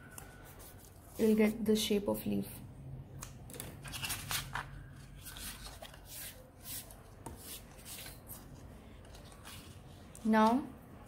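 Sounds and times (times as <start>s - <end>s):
paper rustling and rubbing: 0.2s - 1.6s, 3.8s - 10.2s.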